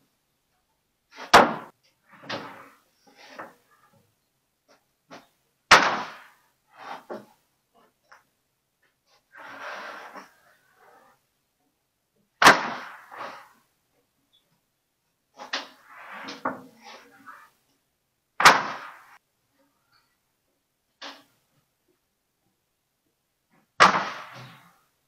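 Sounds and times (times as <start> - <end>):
board scraping: 1.1 - 4.0, 4.7 - 8.2, 9.1 - 11.3, 12.4 - 13.7, 15.4 - 17.6, 23.8 - 24.9
wooden boards clacking: 1.2 - 2.6.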